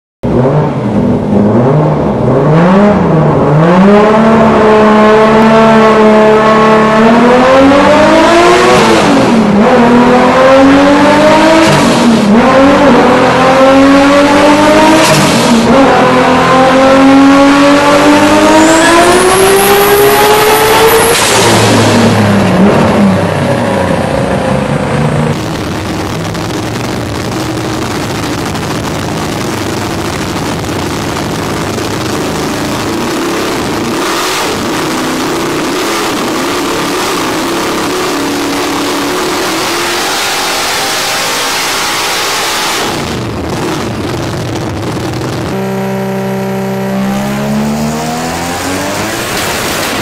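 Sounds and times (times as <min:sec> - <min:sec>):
car engine revving at full throttle: 0:00.2 - 0:50.0.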